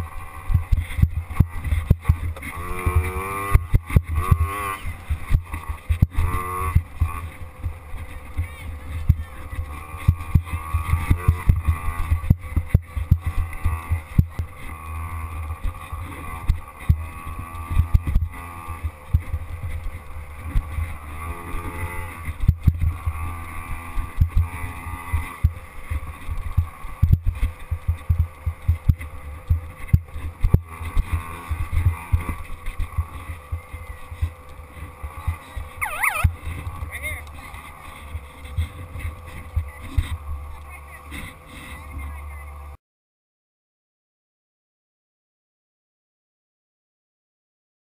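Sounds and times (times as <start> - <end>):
dirt bike engine revving: 0.0 - 42.8.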